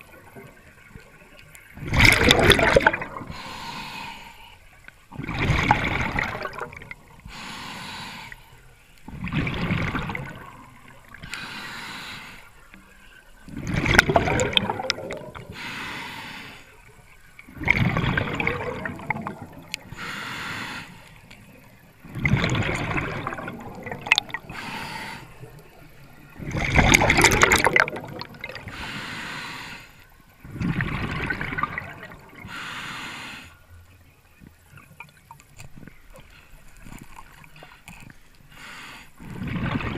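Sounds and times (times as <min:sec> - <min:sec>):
bubbling exhales underwater: 0:01.8 - 0:03.5, 0:05.1 - 0:07.0, 0:09.1 - 0:11.3, 0:13.5 - 0:15.6, 0:17.5 - 0:19.9, 0:22.1 - 0:24.7, 0:26.3 - 0:28.8, 0:30.4 - 0:32.5, 0:39.2 - 0:39.9
regulator hissing inhale: 0:03.3 - 0:04.8, 0:07.2 - 0:08.9, 0:11.2 - 0:13.1, 0:15.5 - 0:16.9, 0:19.8 - 0:21.3, 0:24.5 - 0:25.7, 0:28.7 - 0:30.1, 0:32.4 - 0:33.7, 0:38.5 - 0:39.2.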